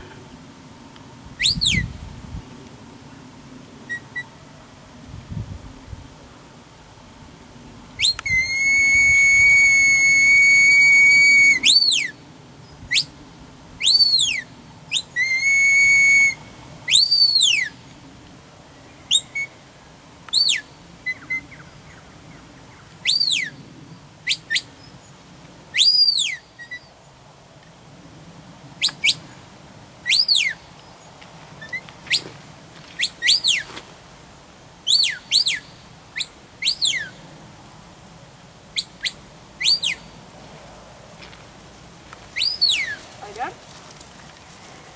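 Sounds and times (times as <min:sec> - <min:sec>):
herding whistle commands: 0:08.0 - 0:12.2, 0:13.8 - 0:17.7.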